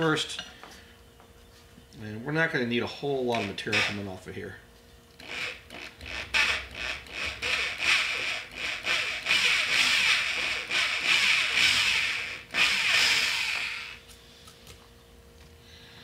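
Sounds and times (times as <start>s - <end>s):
electric drill cutting metal: 3.4s - 4.0s, 5.2s - 14.0s.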